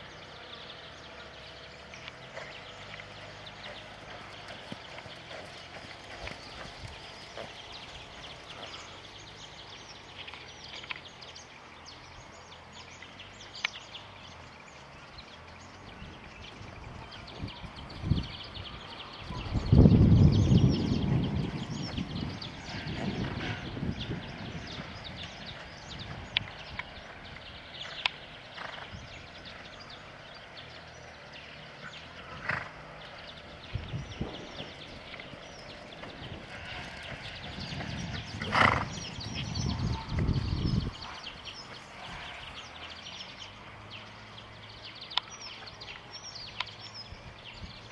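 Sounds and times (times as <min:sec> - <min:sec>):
faint outdoor background noise: 0:00.0 - 0:47.9
small birds chirping: 0:00.0 - 0:47.9
horse hoofbeats on sand: 0:01.8 - 0:10.8, 0:20.5 - 0:30.0, 0:30.6 - 0:43.6.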